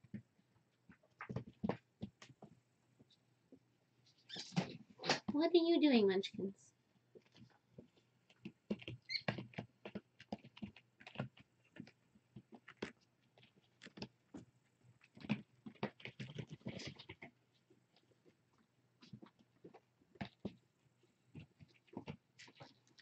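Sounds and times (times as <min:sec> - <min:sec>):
kitten tapping and rustling: 0:00.0 - 0:03.2, 0:07.1 - 0:23.0.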